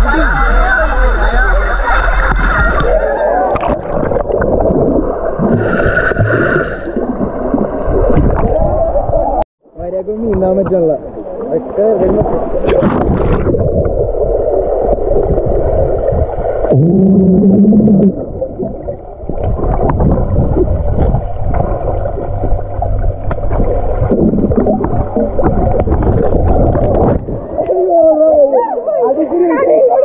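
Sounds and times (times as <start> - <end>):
underwater bubbling and churning: 0.0 - 9.4, 10.4 - 29.0
person humming underwater: 16.7 - 19.0.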